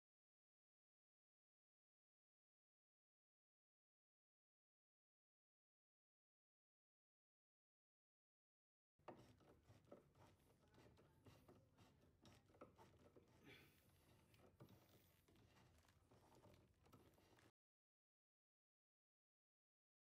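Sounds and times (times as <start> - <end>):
screwdriver clicking and scraping: 9.1 - 17.5.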